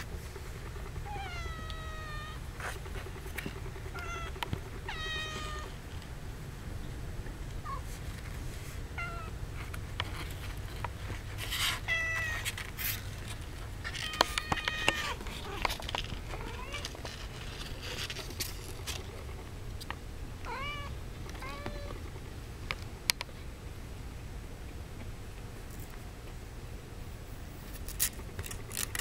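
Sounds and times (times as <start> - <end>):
kittens mewing: 0.7 - 5.8, 11.7 - 12.5, 13.9 - 17.0, 20.4 - 22.0
light clicks and scratches: 1.6 - 6.1, 9.6 - 20.0.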